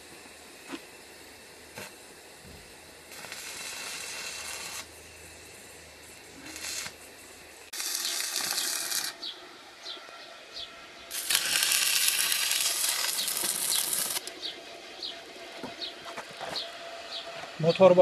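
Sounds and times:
welding arc crackling and sizzling: 0.0 - 10.2, 11.1 - 15.2.

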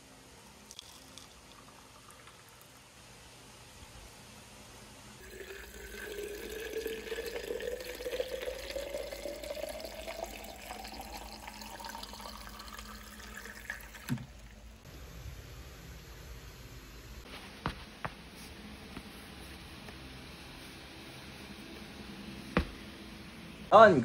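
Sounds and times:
water running into container: 0.6 - 2.9, 5.2 - 14.6
knock: 22.6 - 22.8.

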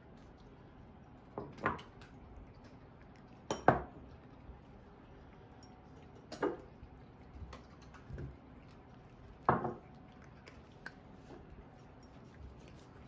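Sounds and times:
cats crunching kibble: 0.0 - 13.0
kibble clicking against bowls: 5.5 - 13.0.

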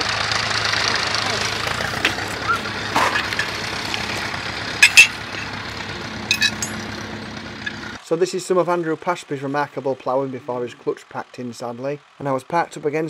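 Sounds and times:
tractor engine idling: 0.0 - 13.0
metal clinks and knocks: 1.8 - 7.0.

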